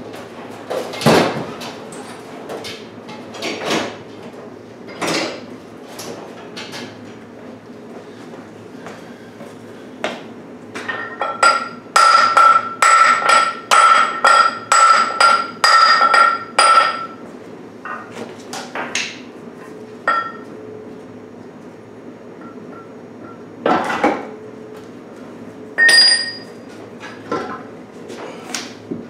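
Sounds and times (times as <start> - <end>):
hammer striking metal: 11.0 - 17.1, 25.8 - 26.5.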